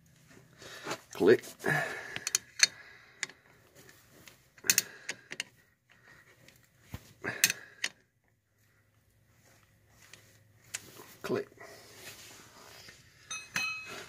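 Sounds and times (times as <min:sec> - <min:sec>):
wrench clicking on bolts: 0:02.2 - 0:03.4, 0:04.6 - 0:05.5.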